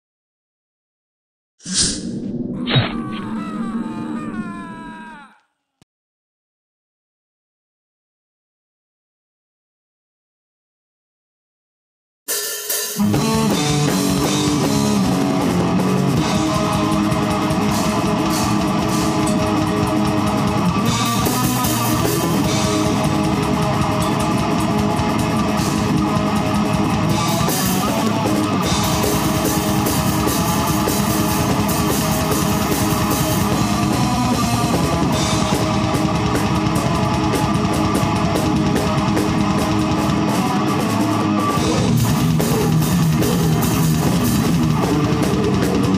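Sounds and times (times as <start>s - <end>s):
distorted guitars: 12.7s - 45.9s
fast dense drumming: 13.0s - 45.9s.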